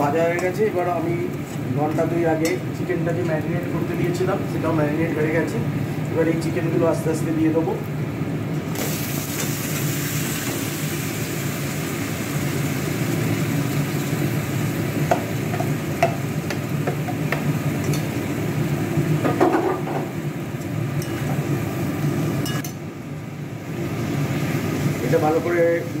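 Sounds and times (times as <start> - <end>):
chicken sizzling in hot oil: 8.4 - 26.0.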